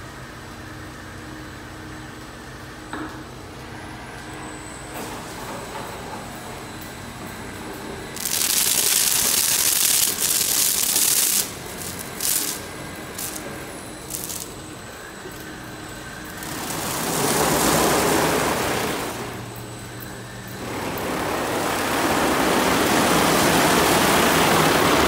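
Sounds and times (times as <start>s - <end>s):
water spray hissing on car: 8.4s - 13.4s.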